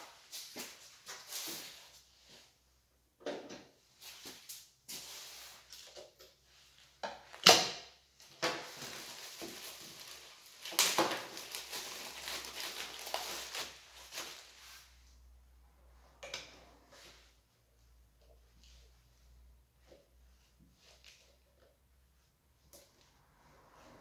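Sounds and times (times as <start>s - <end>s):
plastic packaging crinkling: 8.6s - 14.7s.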